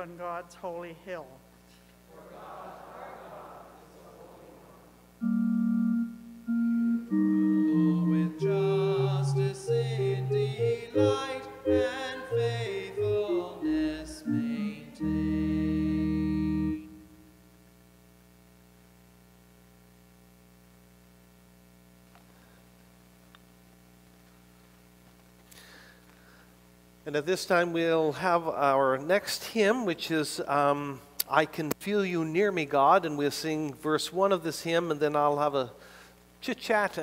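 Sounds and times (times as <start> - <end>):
faint room hum: 0.0 - 37.0
organ-like keyboard: 5.2 - 17.3
person singing: 7.1 - 16.9.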